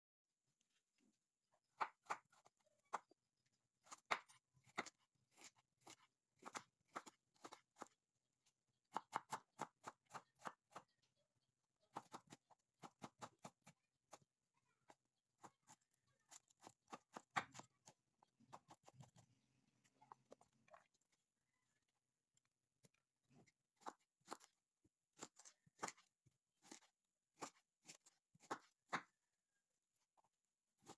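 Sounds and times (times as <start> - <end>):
knife chopping on wooden board: 3.8 - 8.0, 16.6 - 17.8, 23.8 - 24.5, 25.2 - 29.1.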